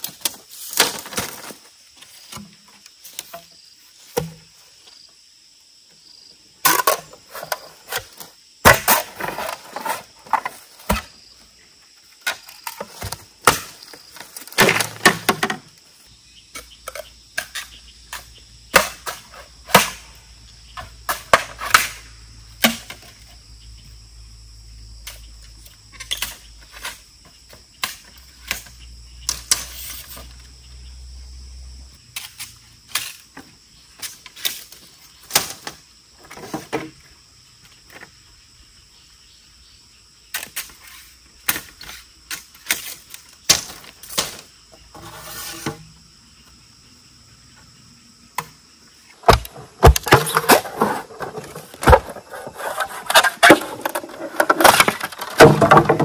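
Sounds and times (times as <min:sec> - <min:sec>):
crickets chirring: 0:00.0 - 0:56.0
wood being chopped: 0:08.6 - 0:09.1, 0:12.3 - 0:13.8, 0:14.5 - 0:15.6, 0:18.7 - 0:20.1, 0:21.1 - 0:22.0, 0:22.6 - 0:23.0, 0:49.2 - 0:52.2, 0:53.2 - 0:56.0.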